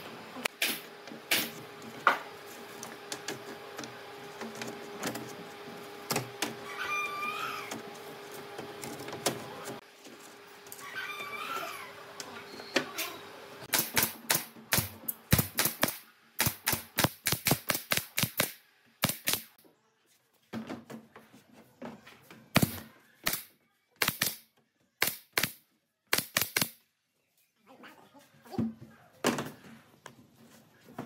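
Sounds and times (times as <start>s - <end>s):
brad nailer firing nails: 13.7s - 19.6s, 22.6s - 24.4s, 25.0s - 26.8s.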